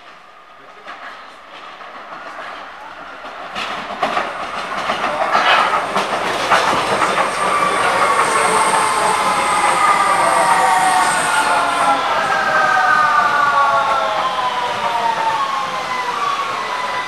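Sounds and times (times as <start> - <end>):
train wheels clattering: 0.0 - 13.4
train whine falling in pitch: 2.0 - 17.0.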